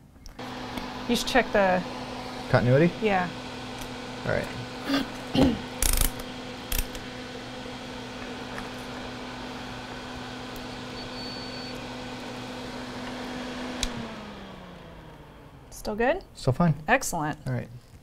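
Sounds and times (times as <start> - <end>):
electric motor hum: 0.3 - 16.9
faint high beep: 11.0 - 11.8.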